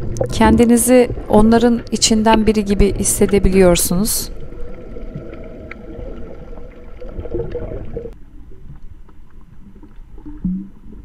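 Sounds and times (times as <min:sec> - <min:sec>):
water sloshing and gurgling underwater: 0:00.0 - 0:11.0.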